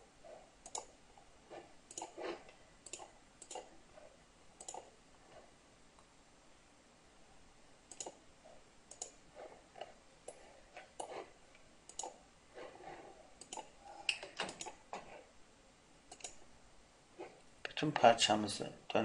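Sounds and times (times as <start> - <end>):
computer mouse clicking: 0.6 - 1.0, 1.8 - 3.7, 4.6 - 5.0, 7.9 - 8.2, 8.9 - 9.2, 9.8 - 12.2, 13.4 - 14.8, 16.1 - 16.4.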